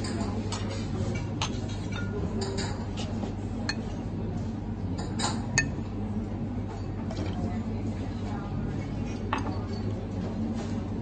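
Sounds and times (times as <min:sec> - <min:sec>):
steady low hum: 0:00.0 - 0:09.3
glassware clinking: 0:01.2 - 0:02.8, 0:05.0 - 0:05.8.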